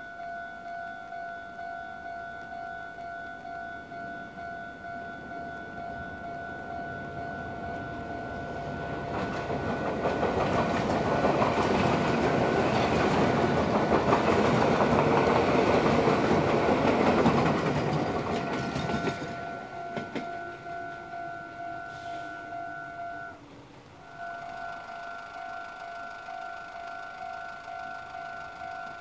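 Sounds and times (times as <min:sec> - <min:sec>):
train wheels clattering on bridge: 0:08.5 - 0:21.1.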